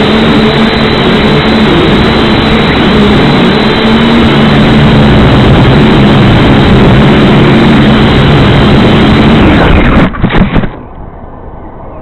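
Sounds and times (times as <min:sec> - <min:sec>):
drone propellers buzzing: 0:00.0 - 0:12.0.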